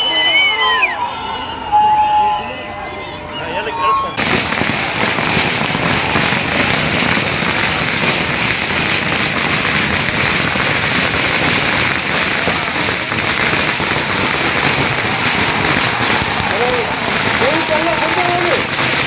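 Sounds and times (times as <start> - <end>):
packed street crowd din: 0.0 - 19.0
rapid crackling: 4.2 - 19.0.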